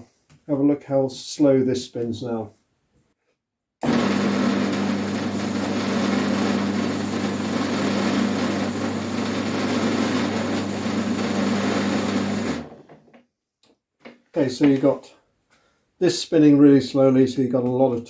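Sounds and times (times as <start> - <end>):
lathe motor humming: 3.8 - 12.7.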